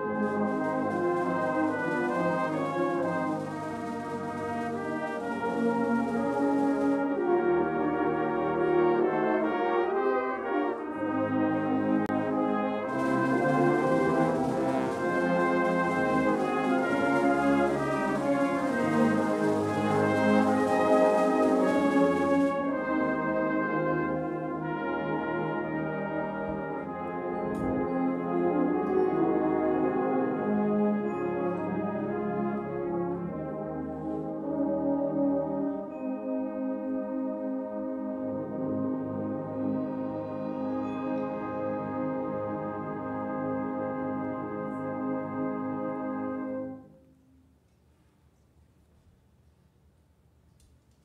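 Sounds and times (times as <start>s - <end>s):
brass band playing a hymn: 0.0s - 47.4s
percussion stroke: 0.2s - 7.3s, 12.9s - 22.9s.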